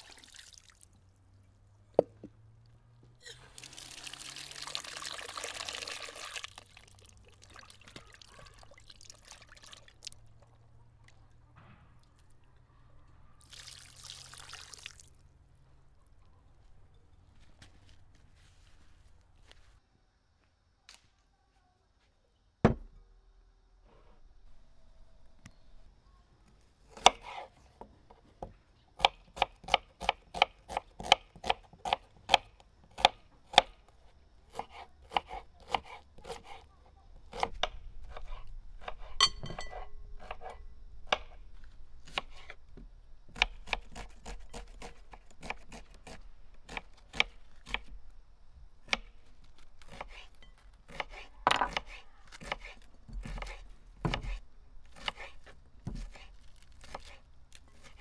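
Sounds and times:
knife chopping on wooden board: 34.5 - 36.6, 50.9 - 54.4, 55.0 - 57.2.

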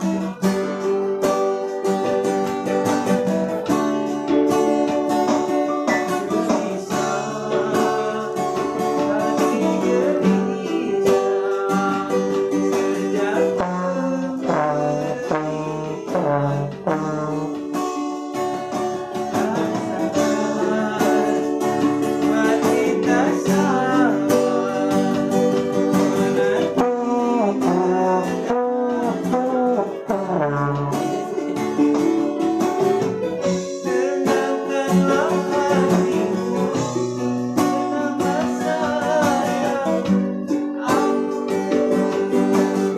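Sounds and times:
strummed acoustic guitar: 0.0 - 42.9
trombone melody with slides: 9.0 - 18.4, 23.0 - 40.4.

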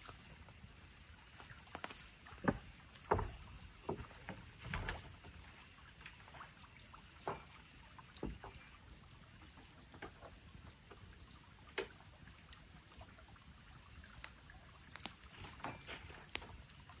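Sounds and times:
campfire crackling: 0.0 - 3.1, 8.5 - 17.0.

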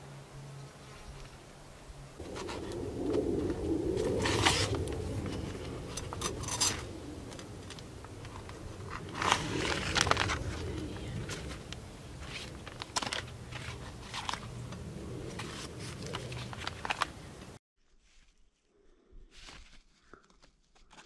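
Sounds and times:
rustling and scraping: 2.2 - 18.5.

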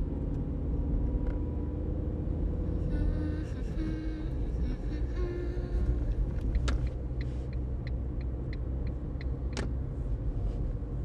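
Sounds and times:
car rumbling on the move: 0.0 - 11.0.

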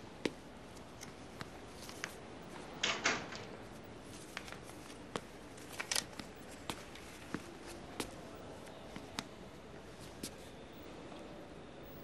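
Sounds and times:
door opening: 2.7 - 3.6
light footsteps on office floor: 3.6 - 10.6.

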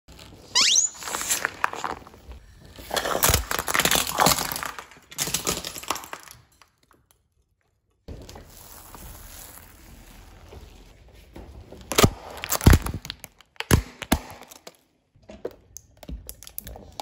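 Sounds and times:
squeaky dog toy squeak: 0.5 - 1.3
plate cracking and shattering: 1.4 - 7.3, 11.9 - 14.9
pieces clattering on stone floor: 1.8 - 7.1.

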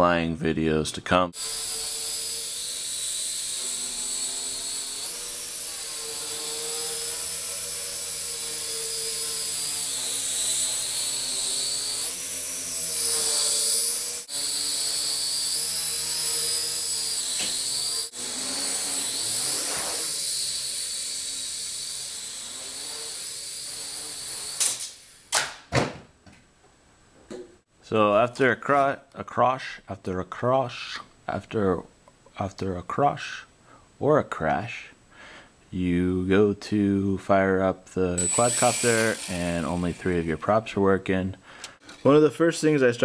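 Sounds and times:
quadcopter motors whining: 1.4 - 25.3, 38.2 - 40.7.

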